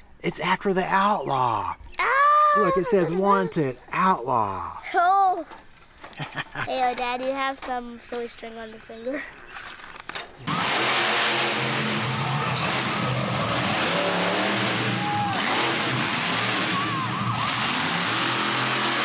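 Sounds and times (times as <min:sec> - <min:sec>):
monster truck engine roaring: 0:10.4 - 0:19.0.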